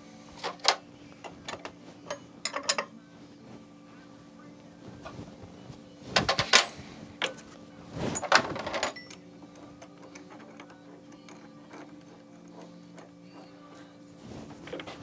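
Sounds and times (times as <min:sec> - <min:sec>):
steady low hum: 0:00.0 - 0:15.0
metal clamp clicking and rattling: 0:01.5 - 0:02.9.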